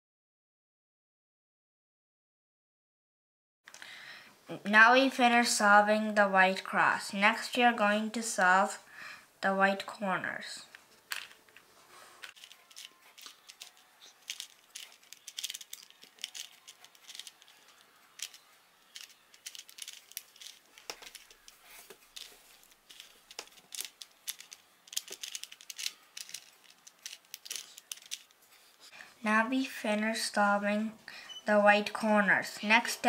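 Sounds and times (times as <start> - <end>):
puzzle cube clicking: 12.2 - 28.4.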